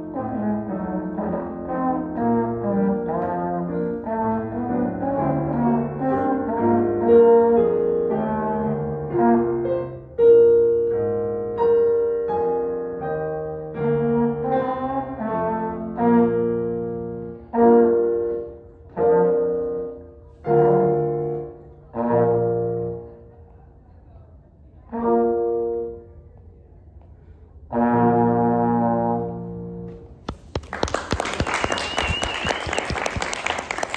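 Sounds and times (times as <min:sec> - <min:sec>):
trombone melody: 0:00.0 - 0:10.4, 0:13.6 - 0:23.1, 0:27.7 - 0:29.8
digital piano chords: 0:00.0 - 0:21.6.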